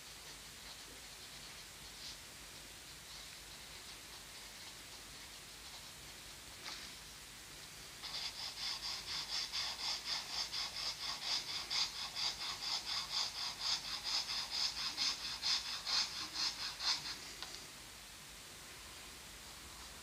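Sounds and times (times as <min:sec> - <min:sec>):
fountain pen scratching on paper: 0:08.0 - 0:17.2.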